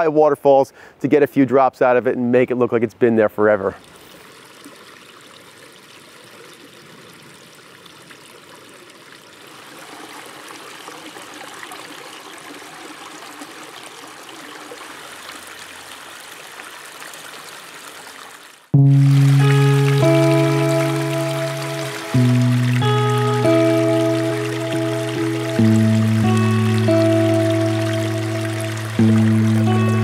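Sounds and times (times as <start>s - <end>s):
water trickling over rocks: 3.7s - 30.0s.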